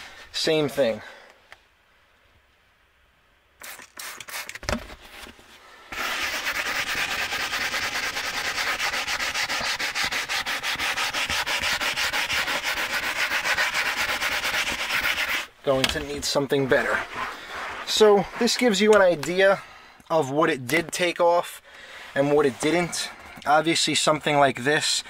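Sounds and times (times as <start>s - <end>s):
brush scrubbing leather: 5.9s - 15.5s, 16.3s - 19.2s.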